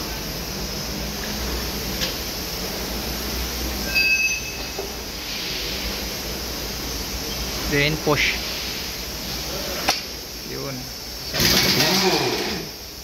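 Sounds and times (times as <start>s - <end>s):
brief high squeak: 3.8s - 4.8s.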